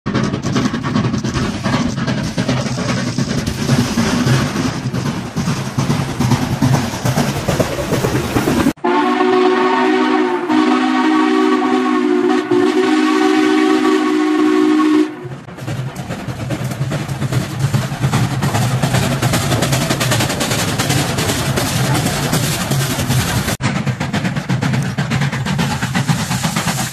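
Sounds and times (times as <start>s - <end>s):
steam locomotive exhaust rumble: 0.1s - 26.9s
steam whistle blast: 8.8s - 15.3s.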